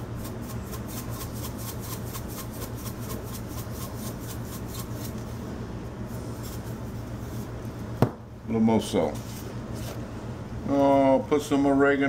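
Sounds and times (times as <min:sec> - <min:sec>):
seasoning shaker rattling: 0:00.0 - 0:05.2
steady low hum: 0:00.0 - 0:12.0.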